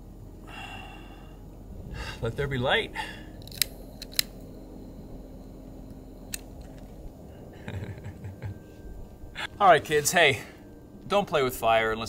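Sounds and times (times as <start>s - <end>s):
lighter clicking: 3.4s - 4.5s, 5.9s - 6.9s.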